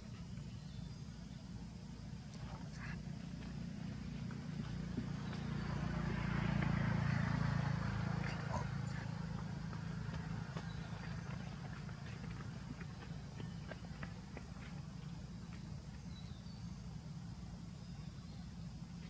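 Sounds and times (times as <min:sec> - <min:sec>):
passing motor vehicle rumble: 0:00.0 - 0:19.0.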